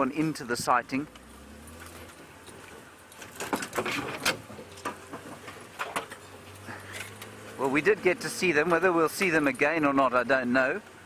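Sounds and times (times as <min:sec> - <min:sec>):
vehicle engine humming: 0:00.0 - 0:11.0
clicks knocks and rattles: 0:02.0 - 0:06.2.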